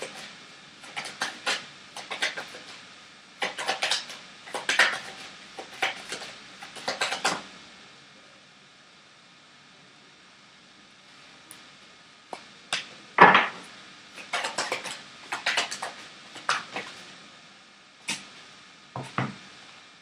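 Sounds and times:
cards being shuffled: 0.0s - 2.8s, 3.4s - 7.4s, 14.2s - 17.1s.

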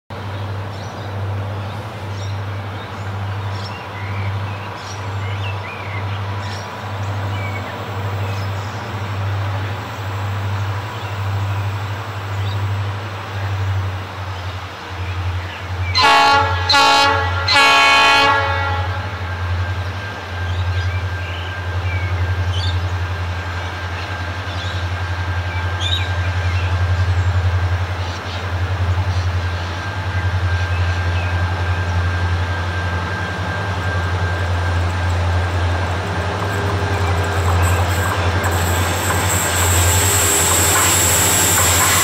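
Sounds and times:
locomotive horn blasts: 16.0s - 19.3s, 37.7s - 42.0s.

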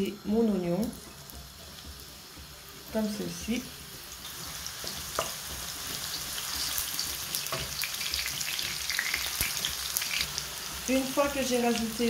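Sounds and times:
onion sizzling in oil: 0.0s - 12.0s
spatula knocking against pan: 4.8s - 6.3s, 7.4s - 7.8s.

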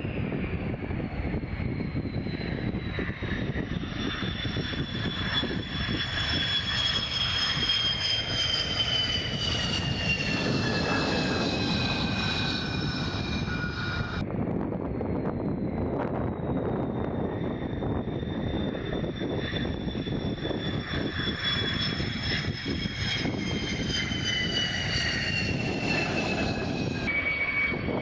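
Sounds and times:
jet engine rumble: 0.0s - 28.0s
jet engine turbine whine: 0.0s - 28.0s.

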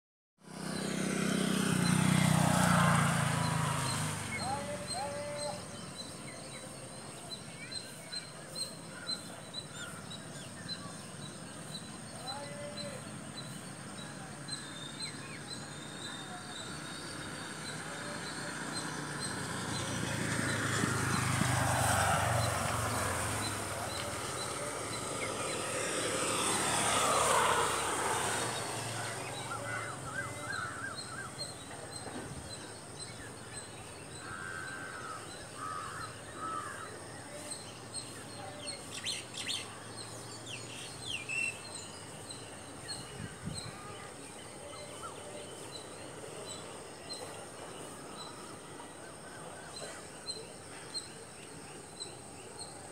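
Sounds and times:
outdoor background noise: 0.4s - 52.9s
vehicles passing: 0.4s - 52.9s
birds chirping: 0.6s - 52.9s.

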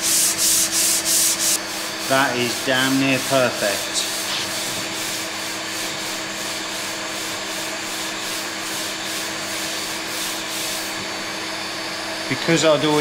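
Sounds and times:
sanding block rasping: 0.0s - 11.0s.

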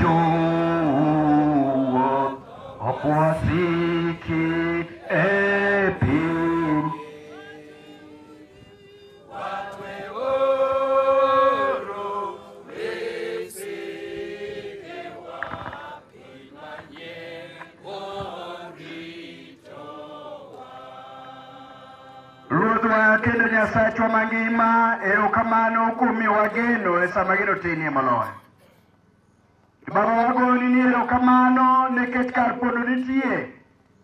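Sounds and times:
voices chanting a hymn: 0.0s - 28.1s.

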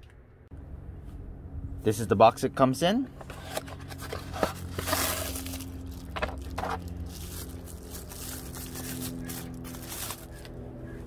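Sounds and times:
steady low hum: 0.0s - 11.0s
plastic bag and bubble wrap rustling: 3.6s - 10.5s.

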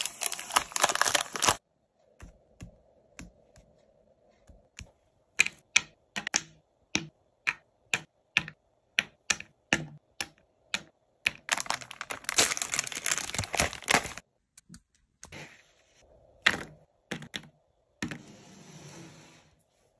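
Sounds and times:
chocolate tapping on wood: 4.5s - 11.5s
biscuits rattling when poured: 11.5s - 14.2s.

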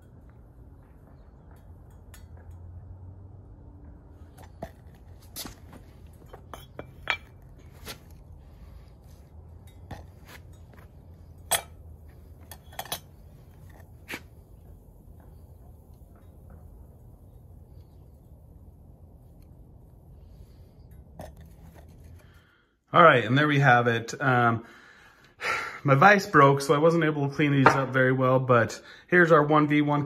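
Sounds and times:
low steady rumble: 0.0s - 22.6s
sharp metallic clinks and knocks: 1.4s - 3.0s, 6.1s - 7.9s, 9.6s - 13.9s.

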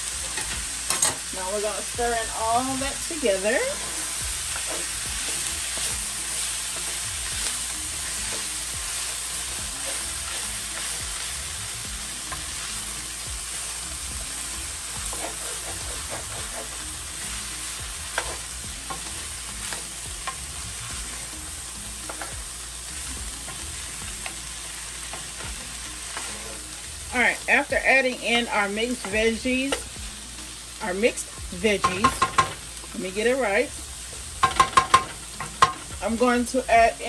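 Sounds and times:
vegetables sizzling in hot oil: 0.0s - 37.0s
wooden spoon scraping pan: 15.1s - 16.8s.

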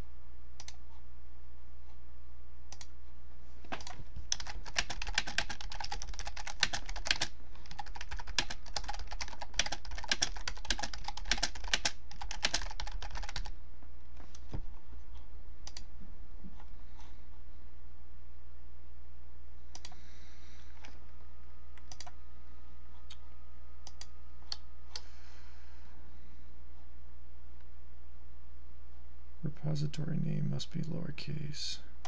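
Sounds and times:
steady low hum: 0.0s - 32.0s
fast typing on computer keyboard: 3.8s - 13.5s.

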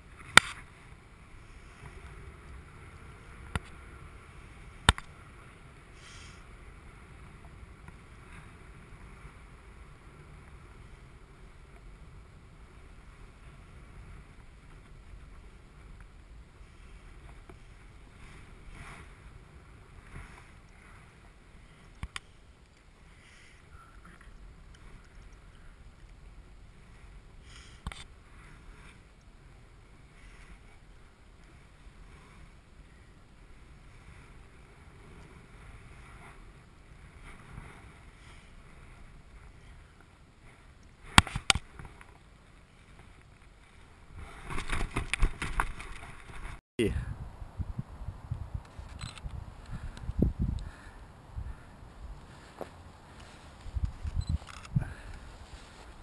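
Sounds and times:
wind rumble on microphone: 23.7s - 56.0s.

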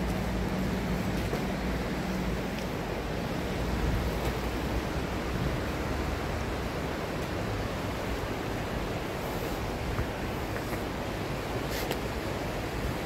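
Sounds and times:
river rushing over stones: 0.0s - 13.0s.

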